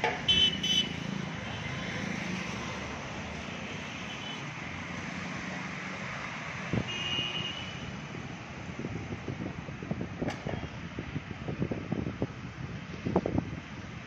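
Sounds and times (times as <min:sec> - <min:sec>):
road traffic rushing: 0:00.0 - 0:14.0
vehicle horn toot: 0:00.3 - 0:00.9, 0:06.9 - 0:07.9.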